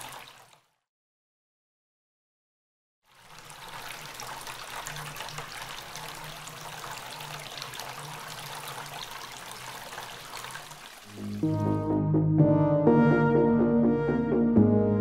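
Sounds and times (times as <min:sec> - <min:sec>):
water trickling into pebbles: 0:00.0 - 0:00.8, 0:03.1 - 0:11.4.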